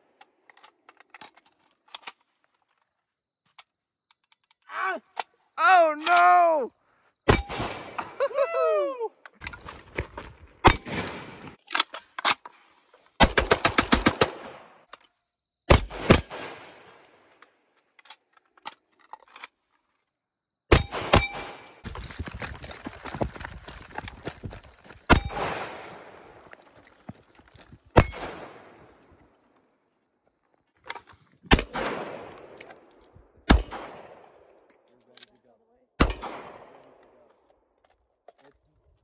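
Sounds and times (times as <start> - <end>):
rifle gunshots: 7.3 - 8.1, 10.6 - 11.6, 31.5 - 32.6, 33.4 - 34.4, 36.0 - 37.0.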